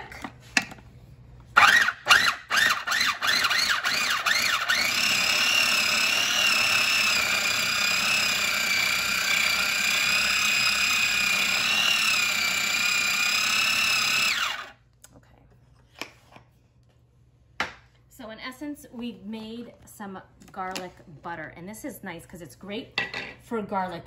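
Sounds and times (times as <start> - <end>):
food processor motor whine: 1.6 - 14.8.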